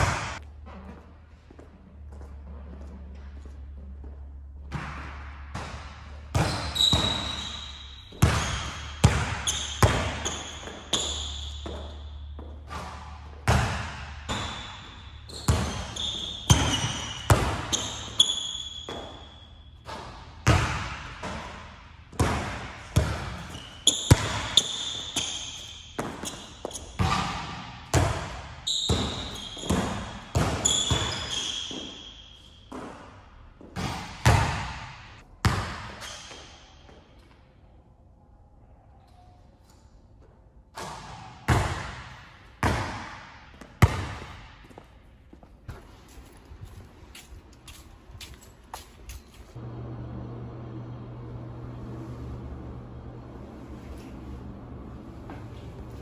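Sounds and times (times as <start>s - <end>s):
basketball dribbling indoors: 0.0s - 37.4s, 40.7s - 46.4s
sneakers squeaking on floor: 0.0s - 37.4s, 40.2s - 49.6s, 53.5s - 56.0s.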